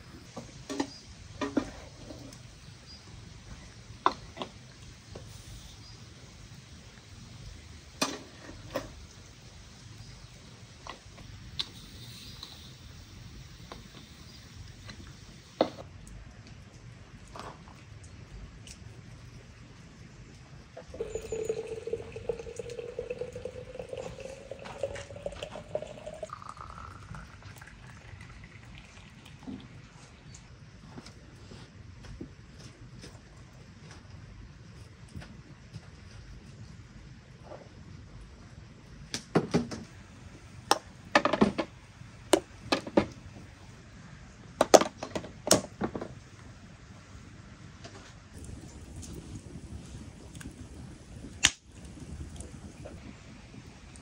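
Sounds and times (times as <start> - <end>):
water pouring into glass bottle: 20.8 - 29.7
glass jars clinking: 21.0 - 26.6.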